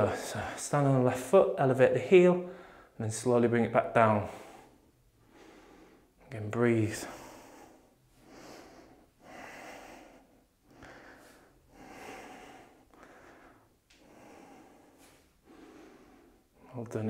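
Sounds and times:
man breathing in and out: 2.4 - 3.0, 4.2 - 16.7.

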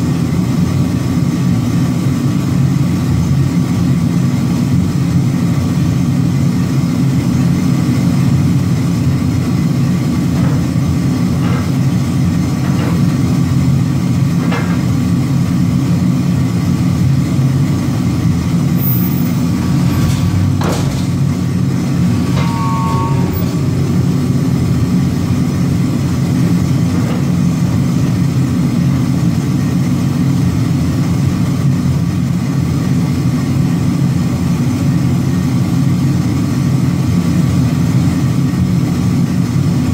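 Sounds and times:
forging hammer idling drone: 0.0 - 36.3
sharp knock: 19.8 - 21.3.

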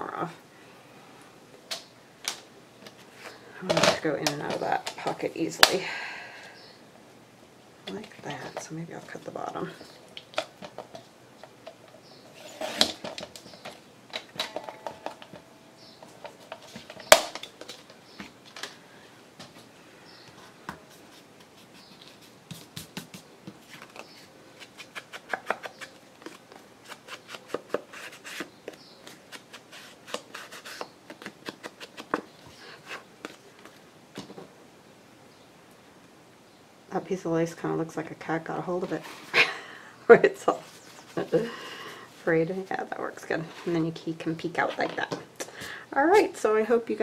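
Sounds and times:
paper rustling: 20.9 - 33.8.

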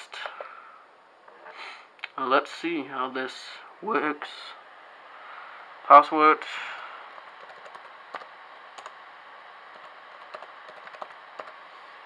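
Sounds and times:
faint steady hiss: 0.0 - 12.0
laptop keystrokes: 7.3 - 9.0, 9.7 - 11.6.

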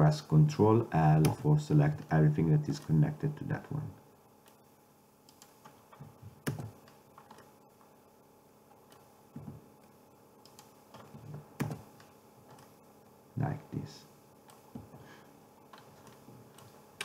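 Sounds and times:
keyboard and mouse clicks: 5.3 - 7.5, 8.8 - 9.6, 10.4 - 12.8, 15.7 - 17.0.

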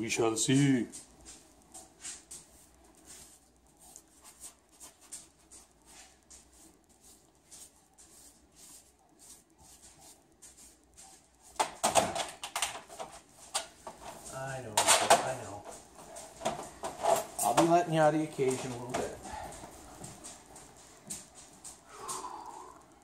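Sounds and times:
paintbrush swishing on wall: 1.0 - 11.6
knocking and clatter: 11.6 - 14.1.

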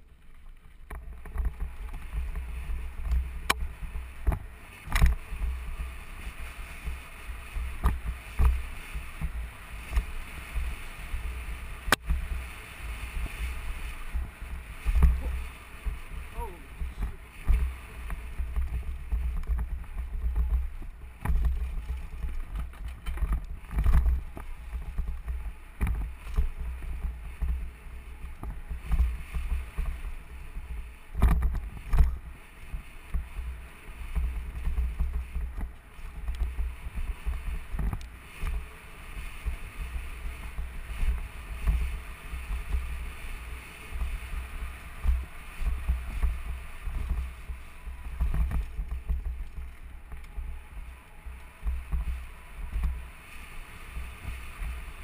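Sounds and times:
tyres on dirt: 0.0 - 55.0
bike clattering over bumps: 16.8 - 38.7.

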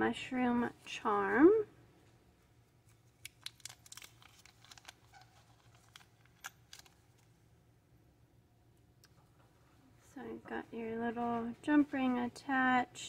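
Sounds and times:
plastic bag crinkling: 2.9 - 7.4.

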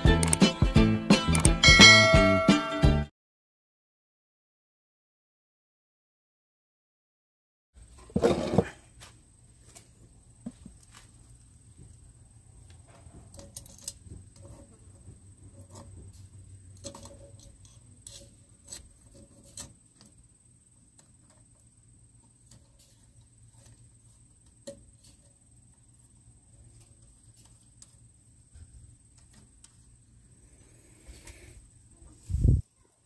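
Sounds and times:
metal parts clicking and tapping: 13.2 - 14.6.

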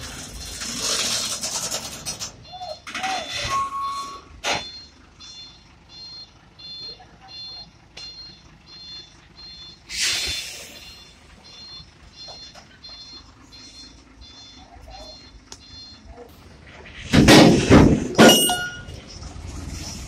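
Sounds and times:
truck engine rumbling: 0.0 - 20.0
truck reversing alarm beeping: 0.1 - 19.7
loud hiss burst: 9.9 - 10.8.

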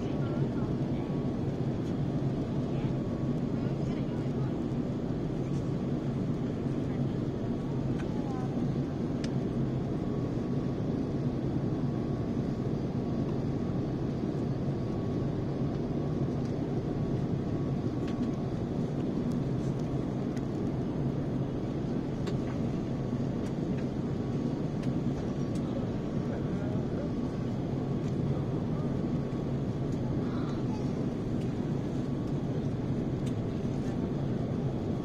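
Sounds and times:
airflow and engine noise: 0.0 - 35.0
light ticks: 33.2 - 33.4.

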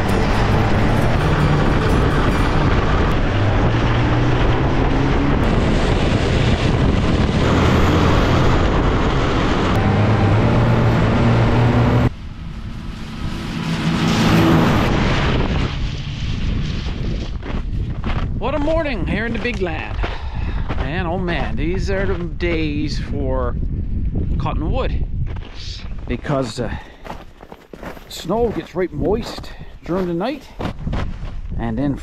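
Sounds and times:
snowmobile engine running: 0.0 - 17.4.

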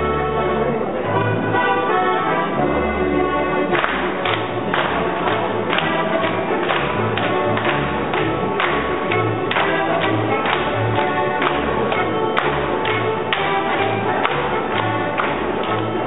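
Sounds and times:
accordion folk dance music: 0.0 - 16.0
people clapping in time: 3.6 - 16.0.

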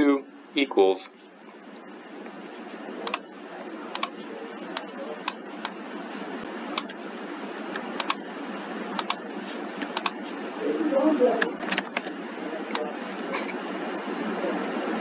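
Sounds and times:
microphone hiss: 0.0 - 15.0
computer mouse clicking: 3.0 - 3.2, 3.9 - 5.8, 6.8 - 7.0, 7.7 - 8.2, 9.0 - 9.2, 9.8 - 10.2, 11.4 - 12.9.

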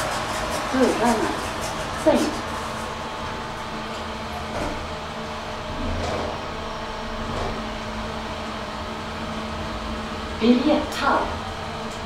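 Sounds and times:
elevator electric hum: 0.0 - 12.0.

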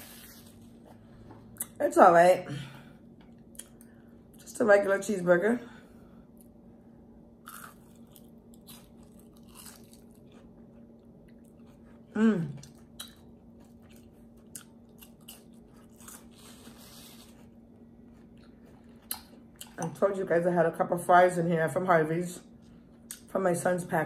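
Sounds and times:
chewing crunchy food: 7.4 - 20.0
person humming: 12.1 - 12.6.

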